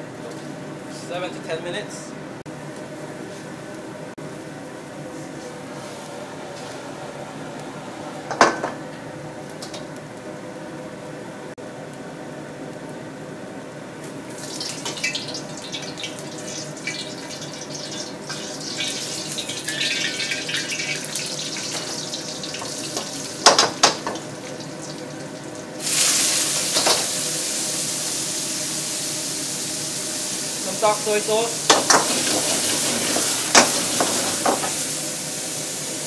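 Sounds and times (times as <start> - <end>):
garlic crackling in hot oil: 14.0 - 36.0
loud steady steam hiss: 25.8 - 36.0.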